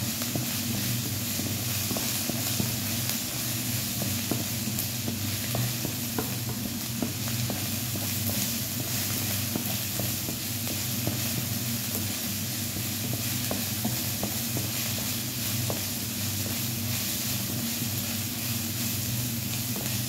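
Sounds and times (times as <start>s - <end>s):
meat sizzling in a wok: 0.0s - 20.0s
spatula scraping and tapping pan: 12.8s - 18.5s, 19.6s - 20.0s.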